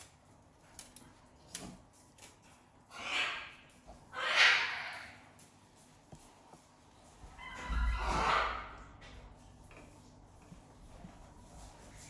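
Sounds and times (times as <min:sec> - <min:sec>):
cockatoo screeching: 0:04.1 - 0:05.2.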